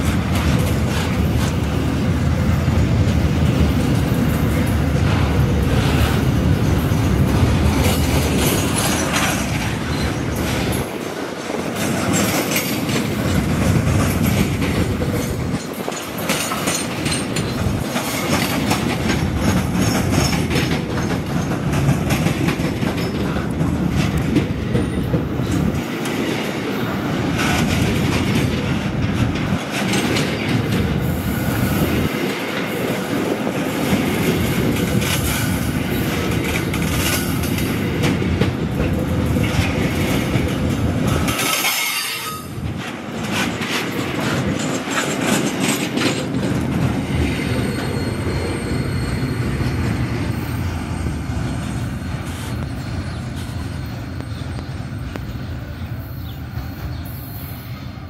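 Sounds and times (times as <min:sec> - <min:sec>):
train wheels clattering over rails: 0:00.0 - 0:57.1
high wheel squeal: 0:41.6 - 0:42.6, 0:47.4 - 0:55.4.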